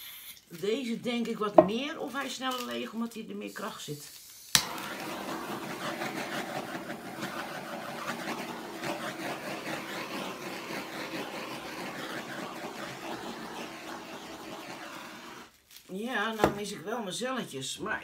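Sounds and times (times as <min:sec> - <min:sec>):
butane torch hissing flame: 0:03.5 - 0:15.5.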